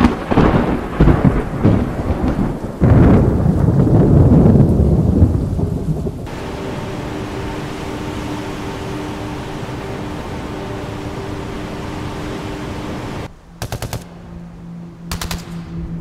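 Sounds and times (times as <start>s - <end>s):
rain-like hiss: 0.0s - 14.5s
thunder rumbling: 0.0s - 14.6s
faint droning hum: 6.2s - 16.0s.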